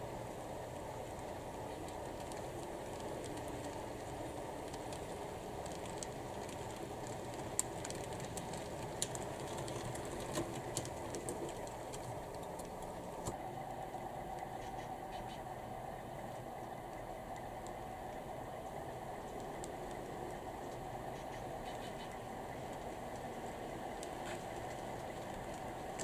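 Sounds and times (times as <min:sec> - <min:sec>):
model train rolling on track: 0:00.0 - 0:26.0
wheel clicks: 0:00.8 - 0:13.4.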